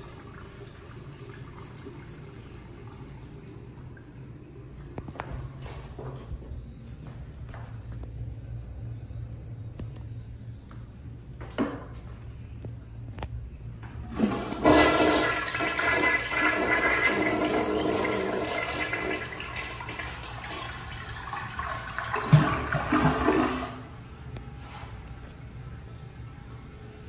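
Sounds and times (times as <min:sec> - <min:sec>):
toilet flushing water rush: 0:14.1 - 0:24.2.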